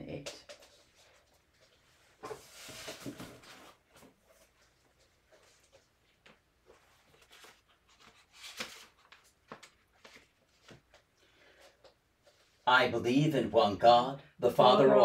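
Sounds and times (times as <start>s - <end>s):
paper pages turning: 0.5s - 11.1s.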